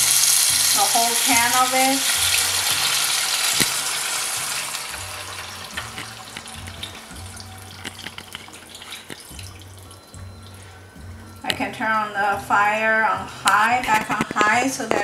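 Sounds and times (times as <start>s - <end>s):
broth sizzling in hot oil: 0.0s - 10.7s
liquid trickling and splashing: 2.1s - 10.6s.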